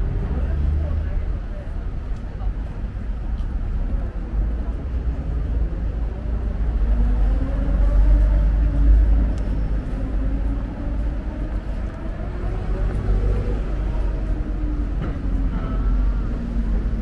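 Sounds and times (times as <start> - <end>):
city street traffic rumble: 0.0 - 17.0.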